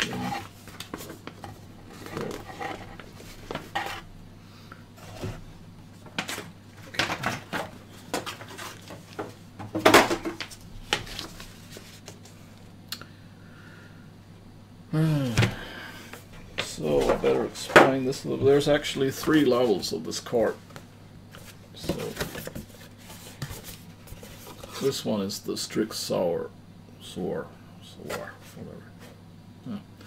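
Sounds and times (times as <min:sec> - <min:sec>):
cardboard and paper rustling: 0:00.0 - 0:04.0, 0:06.2 - 0:09.3, 0:10.3 - 0:12.3, 0:21.4 - 0:25.0
short vocal sound: 0:14.9 - 0:15.6.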